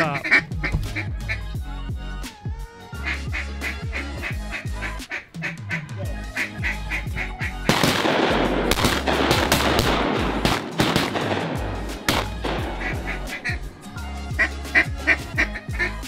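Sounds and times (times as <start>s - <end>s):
music with beat and sliding bass: 0.0s - 7.8s, 11.6s - 16.0s.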